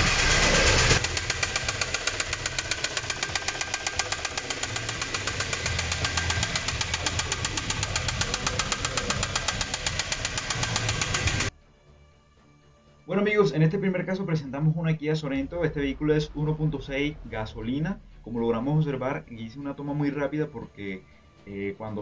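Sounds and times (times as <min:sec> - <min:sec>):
engine with metallic knock: 0:00.0 - 0:11.5.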